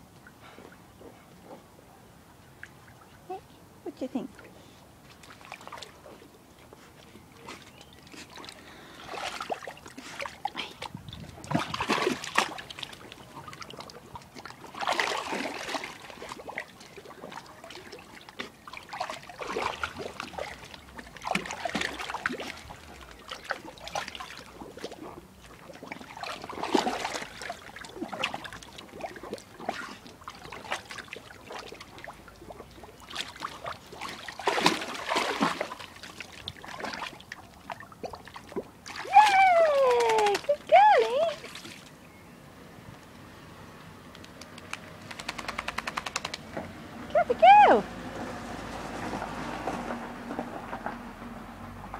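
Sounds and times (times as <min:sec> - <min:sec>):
water splashing in a pool: 0:04.0 - 0:42.0, 0:43.2 - 0:51.9.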